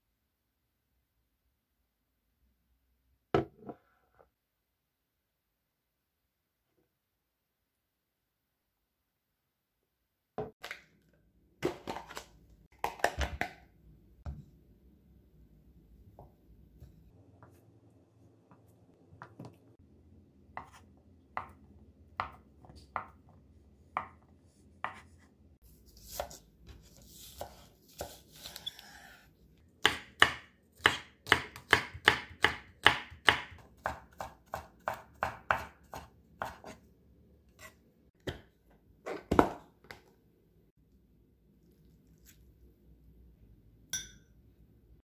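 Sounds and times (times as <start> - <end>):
knife chopping on wooden board: 29.8 - 36.8.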